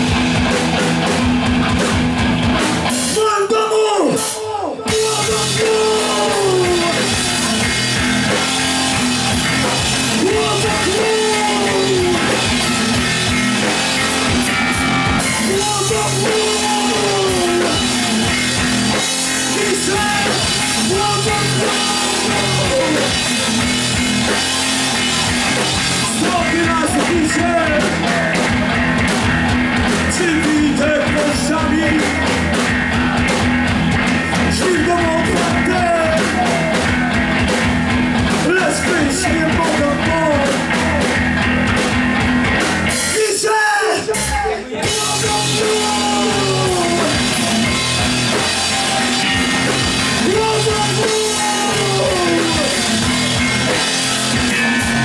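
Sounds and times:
electric guitar: 0:00.0 - 0:03.2, 0:04.1 - 0:55.0
drum kit: 0:00.0 - 0:55.0
man singing into a microphone: 0:03.1 - 0:07.6, 0:10.1 - 0:12.3, 0:15.4 - 0:18.0, 0:19.4 - 0:23.2, 0:26.0 - 0:28.6, 0:30.1 - 0:32.2, 0:34.5 - 0:37.1, 0:38.4 - 0:41.0, 0:43.1 - 0:47.7, 0:50.1 - 0:53.0.

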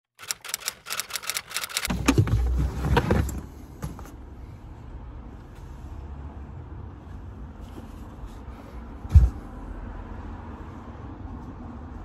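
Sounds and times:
rapid clicking and rattling: 0:00.1 - 0:02.3.

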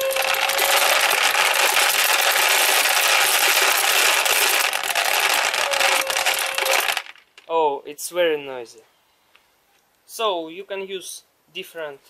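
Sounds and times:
ceramic balls rattling in mill: 0:00.0 - 0:07.5.

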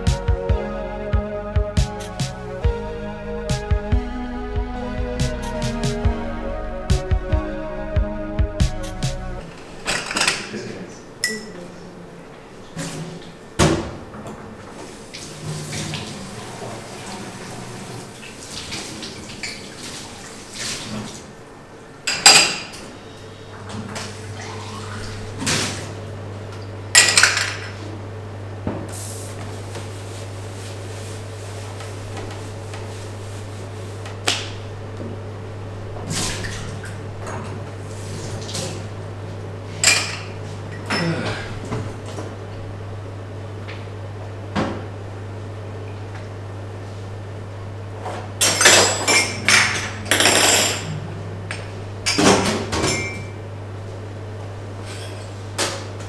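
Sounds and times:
low machine hum: 0:00.0 - 0:19.2, 0:21.1 - 0:56.0
glasses and dishes clinking: 0:11.2 - 0:11.6, 0:39.8 - 0:41.2, 0:48.4 - 0:50.9, 0:52.0 - 0:53.4.

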